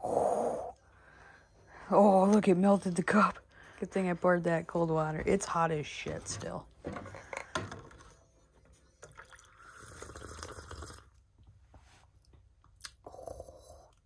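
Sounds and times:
slurping tea: 9.1 - 11.1.

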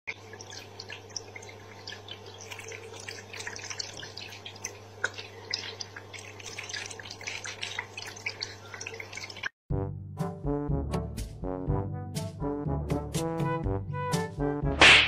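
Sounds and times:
water trickling into bowl: 0.1 - 9.6.

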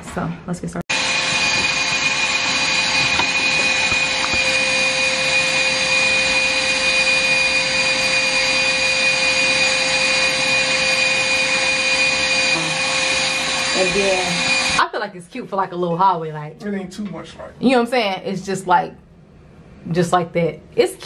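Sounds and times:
electric motor whining: 0.9 - 14.8.

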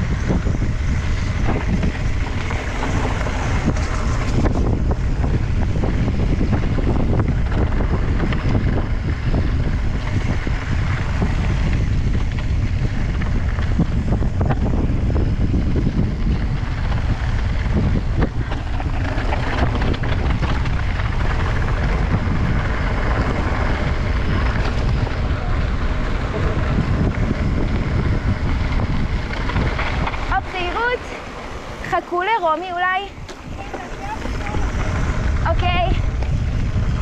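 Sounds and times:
bike rattling: 0.0 - 37.0
wind rushing over microphone: 0.0 - 37.0
tyres crunching over loose stones: 10.0 - 35.4.

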